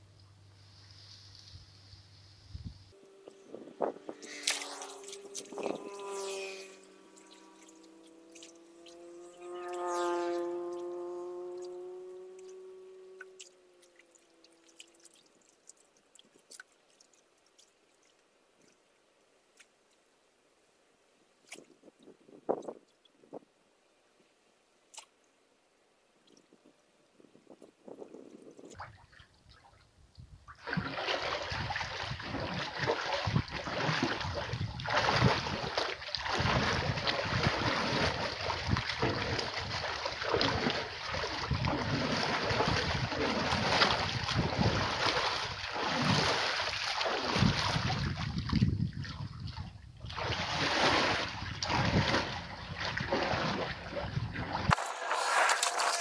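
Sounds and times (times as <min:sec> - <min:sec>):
water splashing and sloshing: 0:03.8 - 0:20.0, 0:28.6 - 0:56.0.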